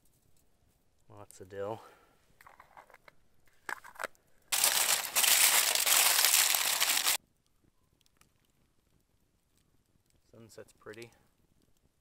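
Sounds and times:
rustling: 0:02.6 - 0:07.2
aluminium foil crinkling: 0:04.5 - 0:07.2.

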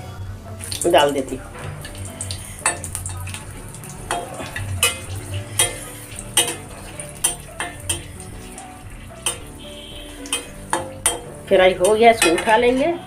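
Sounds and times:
chillies sizzling in hot oil: 0:00.0 - 0:13.0
metal spatula scraping a pan: 0:01.0 - 0:13.0.

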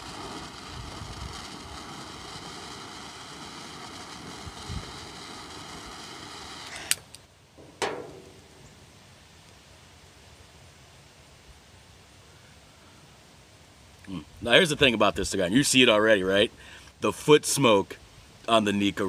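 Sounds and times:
torch flame hissing: 0:00.0 - 0:07.2.

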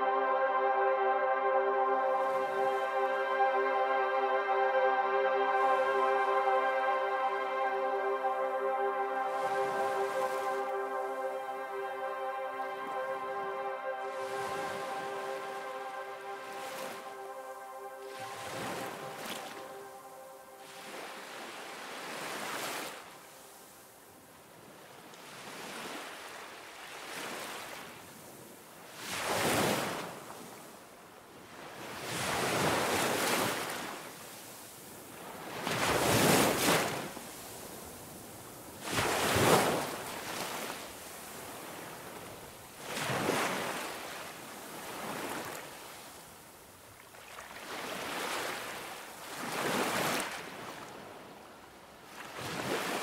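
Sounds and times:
ocean waves breaking: 0:00.0 - 0:53.0.

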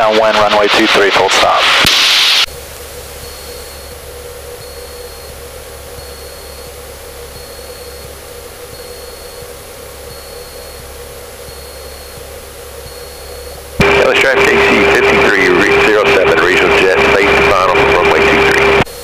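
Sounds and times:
aircraft engine and propeller droning: 0:02.5 - 0:19.0
faint high beep: 0:03.2 - 0:16.7.

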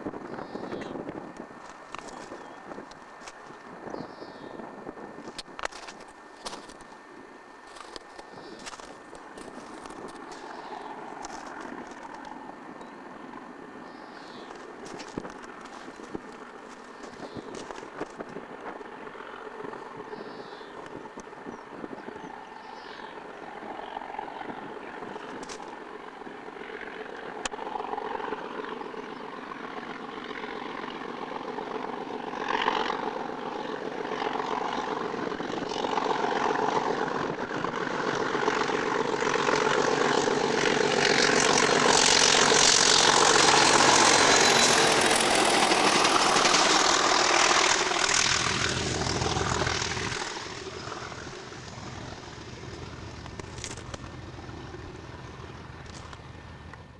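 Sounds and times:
diesel locomotive engines drumming: 0:39.9 - 0:56.9.

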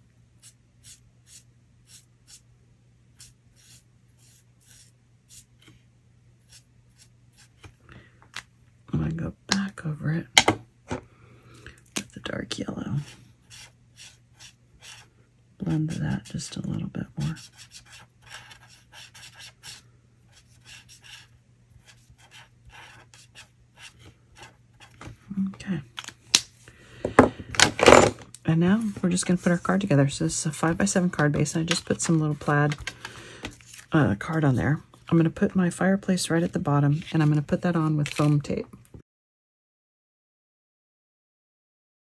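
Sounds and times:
marker scratching on cardstock: 0:00.4 - 0:02.4, 0:03.2 - 0:05.5, 0:13.0 - 0:15.1, 0:17.2 - 0:25.0.

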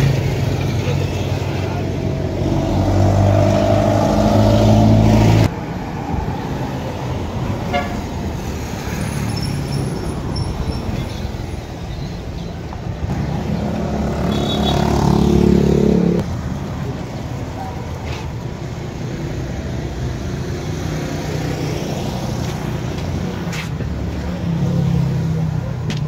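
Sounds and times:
traffic noise: 0:00.0 - 0:26.0
car horn toot: 0:14.2 - 0:15.0.

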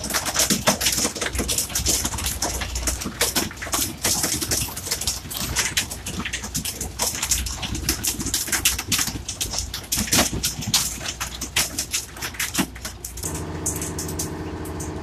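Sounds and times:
water and fish splashing: 0:00.0 - 0:15.0
droning hum: 0:13.2 - 0:15.0.

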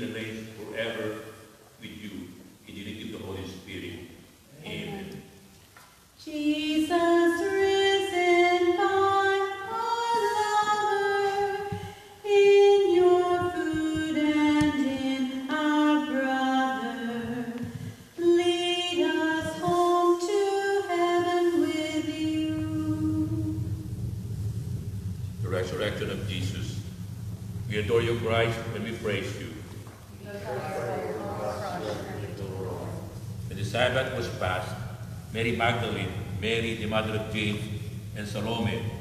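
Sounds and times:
unaccompanied hymn singing: 0:06.2 - 0:23.9, 0:28.0 - 0:34.8.

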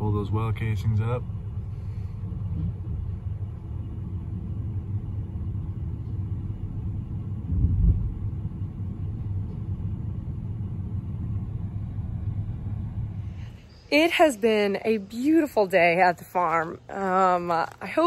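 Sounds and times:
engine rumble: 0:00.0 - 0:18.0
low thud: 0:07.4 - 0:13.5.

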